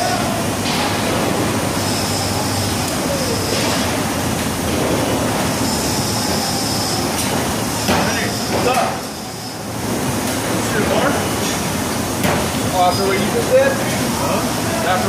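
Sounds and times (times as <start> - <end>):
construction machinery rumble and hiss: 0.0 - 15.0.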